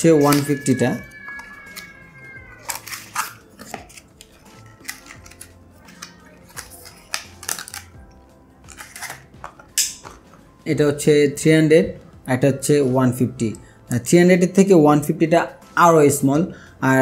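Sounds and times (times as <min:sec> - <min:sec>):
cardboard and plastic crinkling: 0:02.6 - 0:07.9.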